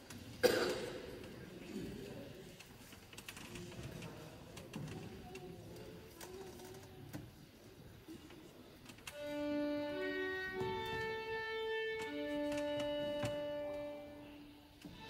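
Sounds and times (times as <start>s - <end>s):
faint notes: 9.1s - 15.0s
violin orchestra sustained notes: 9.2s - 15.0s.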